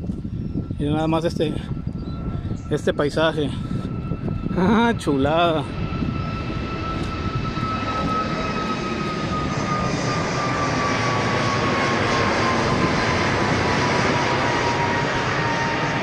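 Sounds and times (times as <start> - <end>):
high whine falling in pitch: 0.0 - 11.7
airliner engine noise: 0.0 - 16.0.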